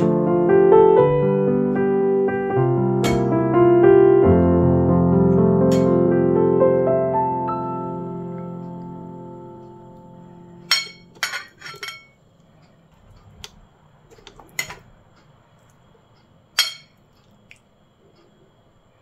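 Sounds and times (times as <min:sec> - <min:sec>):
piano chord: 0:00.0 - 0:11.5
cutlery clinking on a plate: 0:10.7 - 0:12.2, 0:16.6 - 0:17.0.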